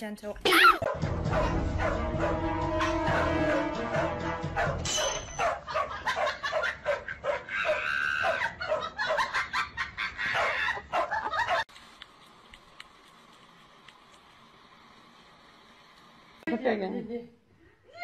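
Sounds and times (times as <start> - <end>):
dog barking rapidly: 0.5 - 3.3, 4.5 - 9.4, 10.4 - 11.6.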